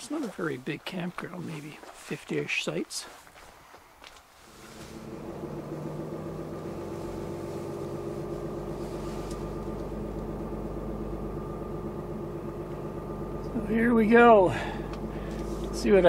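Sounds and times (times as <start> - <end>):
truck engine running: 4.4 - 16.0.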